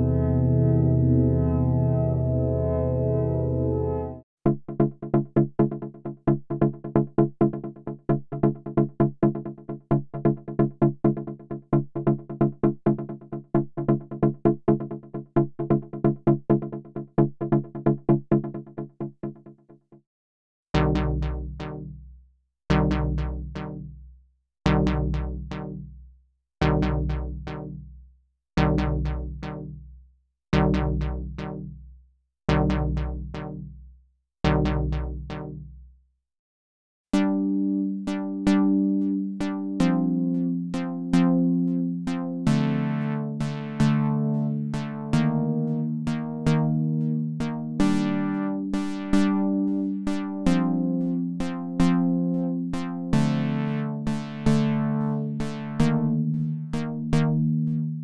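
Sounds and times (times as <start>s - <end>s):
synthesizer chord stabs with bass: 0.0s - 4.2s, 37.2s - 58.0s
synthesizer chords with clicky attacks: 0.0s - 4.2s, 37.2s - 58.0s.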